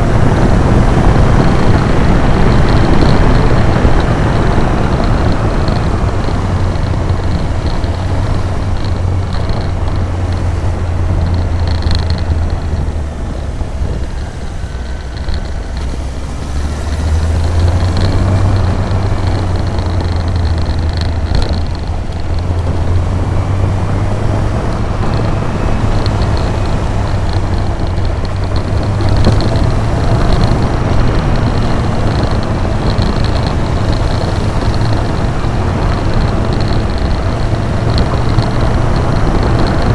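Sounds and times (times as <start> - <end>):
motorcycle engine running: 0.0 - 39.9
road noise: 0.0 - 39.9
wind rush: 0.0 - 39.9.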